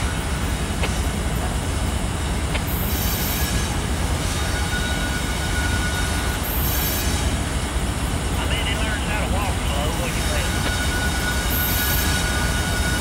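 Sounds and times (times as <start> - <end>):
train rumble: 0.0 - 13.0
wheel squeal: 2.7 - 7.4, 10.2 - 13.0.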